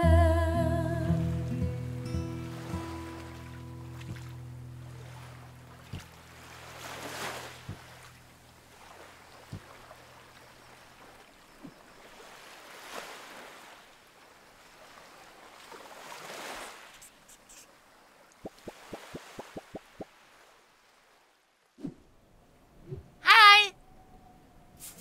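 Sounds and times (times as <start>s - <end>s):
small ticks: 17.0s - 17.7s.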